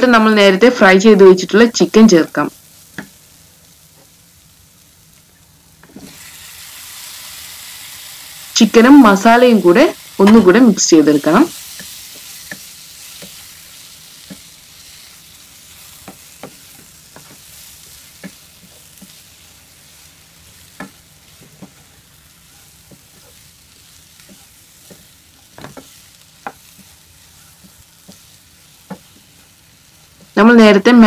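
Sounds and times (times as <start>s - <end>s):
chicken sizzling in a pan: 0.0s - 31.0s
spatula scraping a pan: 11.5s - 30.4s.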